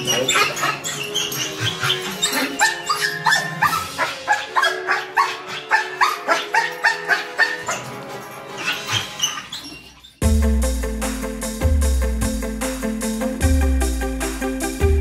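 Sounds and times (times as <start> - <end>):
dog barking and yipping: 0.0 - 10.2
faint background music: 0.0 - 10.4.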